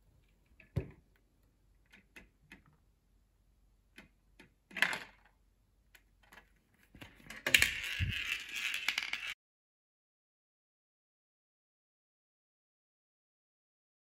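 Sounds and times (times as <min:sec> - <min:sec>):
ball clicking on plastic tracks: 0:06.0 - 0:09.4
plastic rubbing and rattling: 0:06.2 - 0:09.4.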